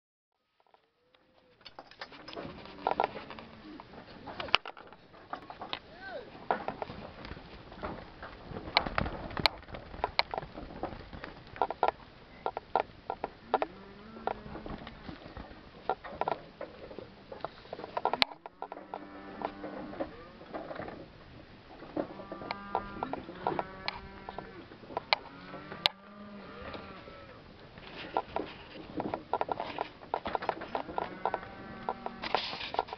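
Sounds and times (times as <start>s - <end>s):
knocks and clatter of gates: 1.6s - 25.9s, 28.0s - 32.9s
cow mooing: 13.4s - 14.6s, 18.7s - 20.5s, 22.1s - 27.4s, 30.8s - 32.4s.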